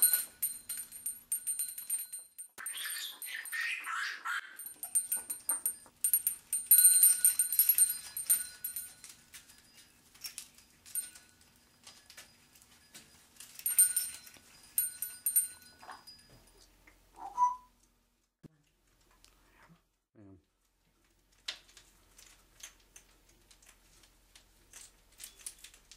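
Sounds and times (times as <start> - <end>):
toys rattling and clinking: 0.0 - 16.8, 21.3 - 25.9
parrot call: 2.6 - 4.6.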